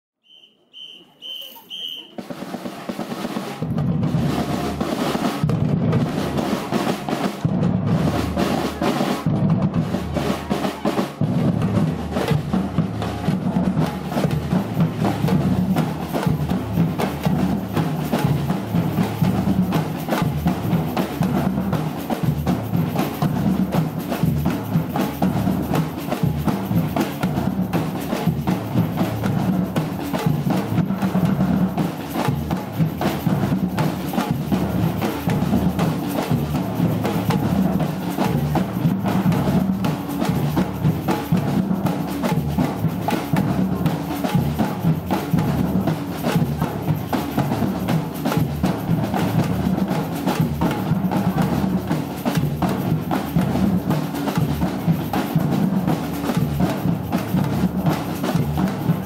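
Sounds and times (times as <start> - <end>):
high whistle blasts: 0.2 - 2.2
samba drum ensemble: 0.3 - 59.0.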